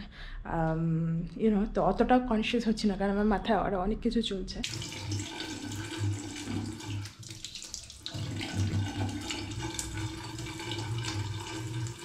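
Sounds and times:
tap water running into sink: 4.6s - 12.0s.

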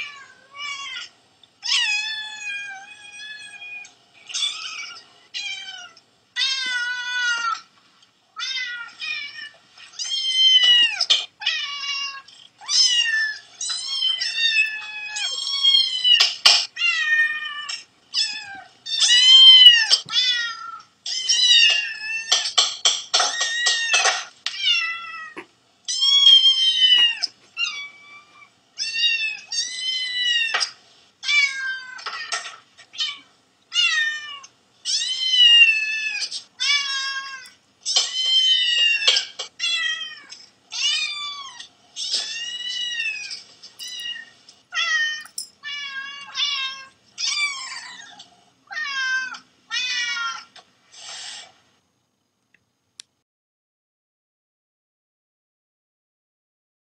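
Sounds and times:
cats and kittens meowing: 0.0s - 7.7s, 8.4s - 51.4s.

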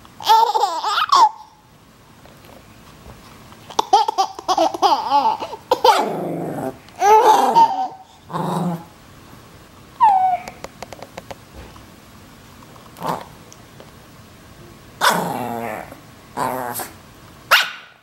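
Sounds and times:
baby laughing and squealing: 0.2s - 1.6s, 3.7s - 6.2s, 7.0s - 8.2s, 10.0s - 10.6s
small dog growling and barking: 5.7s - 9.0s, 10.0s - 10.6s, 13.0s - 13.4s, 15.0s - 17.9s.

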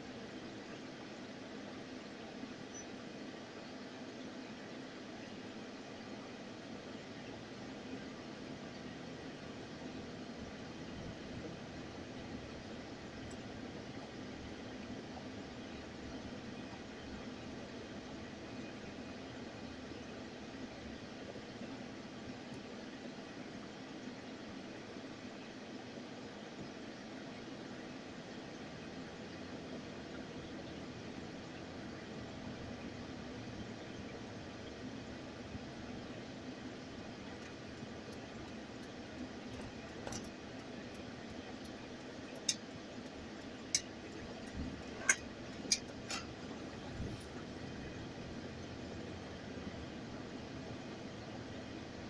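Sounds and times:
car engine and road noise: 28.4s - 52.0s.

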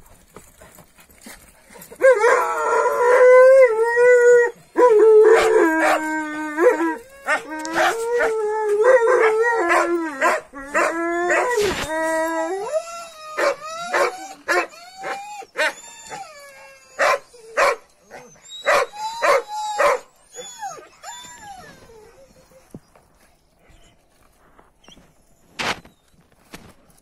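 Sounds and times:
dog howling: 2.0s - 17.4s.

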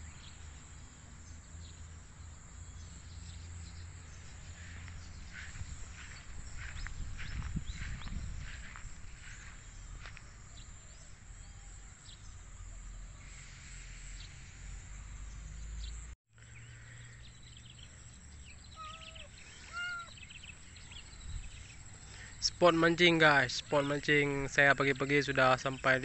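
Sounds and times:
faint bird chirps: 2.6s - 22.6s
short pitched animal calls: 18.7s - 20.3s.

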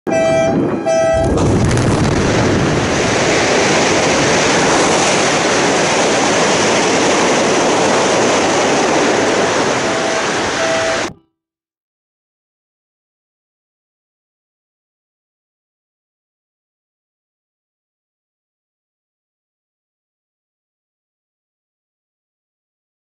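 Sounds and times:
short tone: 0.1s - 1.4s, 9.8s - 11.4s
rock blast roar: 0.2s - 11.1s.

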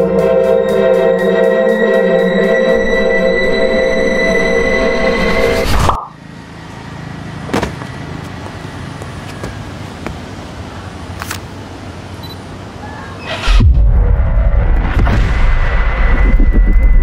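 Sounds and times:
distant road traffic rumble: 6.0s - 13.6s.

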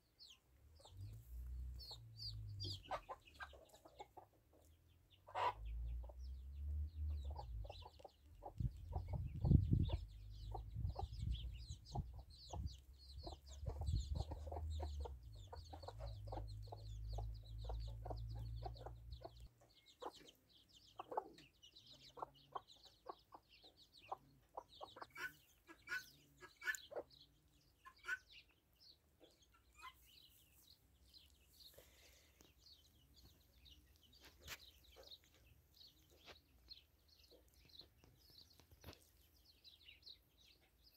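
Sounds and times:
hen clucking: 0.2s - 6.4s, 7.1s - 28.6s, 29.2s - 30.4s.

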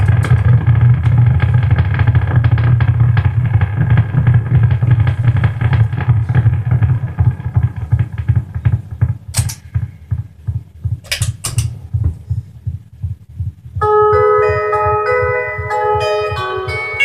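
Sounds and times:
electric guitar chugging: 0.0s - 17.0s
scratchy guitar strums: 13.8s - 17.0s.

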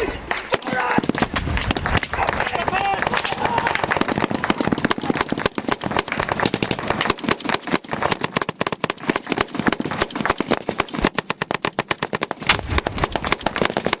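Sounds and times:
rifle and machine-gun fire: 0.4s - 14.0s
heavy deep bang: 12.4s - 13.2s.

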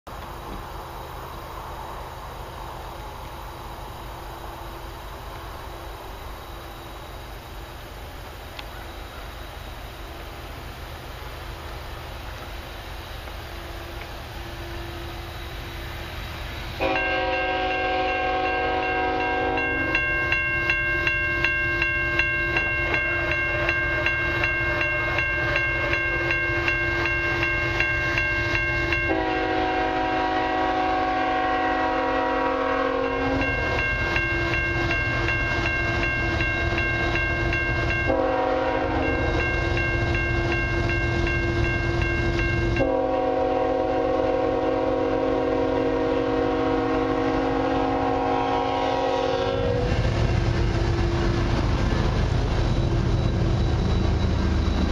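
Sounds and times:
locomotive rumble: 0.1s - 54.9s
railway crossing bell ringing: 16.7s - 54.9s
train horn blasts: 16.8s - 20.0s, 28.6s - 35.0s, 38.0s - 39.5s, 41.2s - 50.1s.

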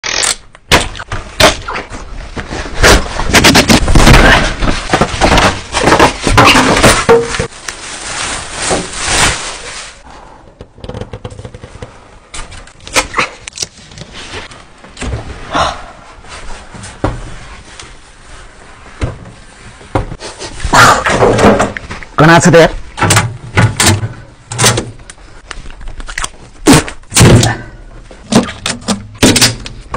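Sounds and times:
knocks and bumps of handling: 2.4s - 7.5s.

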